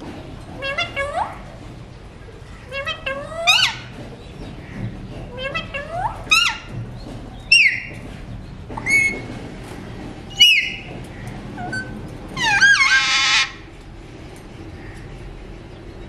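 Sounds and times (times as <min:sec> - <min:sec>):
harsh parakeet call: 0:02.6 - 0:03.9, 0:11.6 - 0:13.7
parakeet whistled calls: 0:10.3 - 0:10.9, 0:11.6 - 0:13.6.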